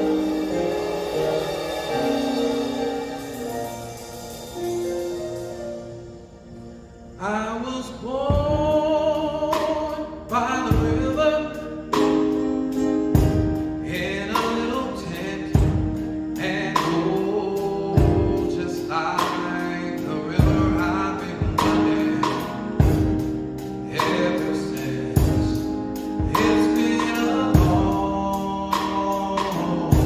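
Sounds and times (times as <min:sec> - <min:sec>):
slow drum kit hits: 0:00.0 - 0:06.0, 0:08.2 - 0:30.0
sustained keyboard chords: 0:00.0 - 0:30.0
man singing gospel: 0:07.1 - 0:12.5, 0:13.6 - 0:30.0.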